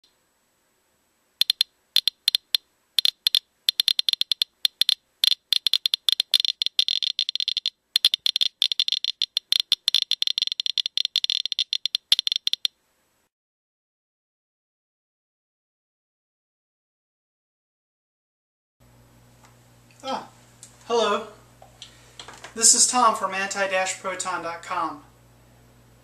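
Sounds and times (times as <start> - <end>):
geiger counter clicking: 1.4 - 12.7.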